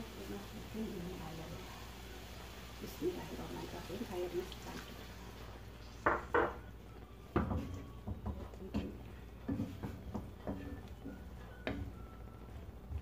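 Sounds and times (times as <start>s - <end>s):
wooden spatula knocking a pan: 7.3s - 11.9s.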